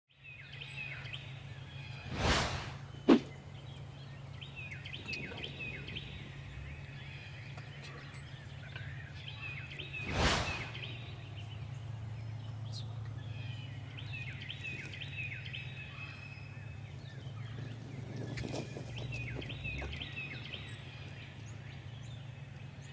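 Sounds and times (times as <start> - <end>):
small birds chirping: 0.1 - 22.9
whoosh sound effect: 2.0 - 3.3, 10.0 - 11.0
sharp thud: 2.1 - 3.4, 10.1 - 10.9.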